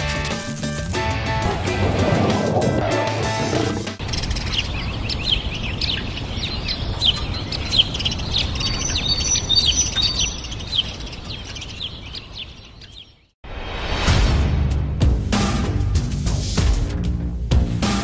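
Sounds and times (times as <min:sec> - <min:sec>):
small birds chirping: 0:04.0 - 0:13.4.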